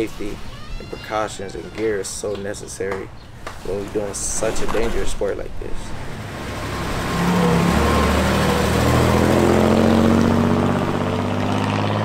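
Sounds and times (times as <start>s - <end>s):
car engine pulling away: 5.9s - 12.0s.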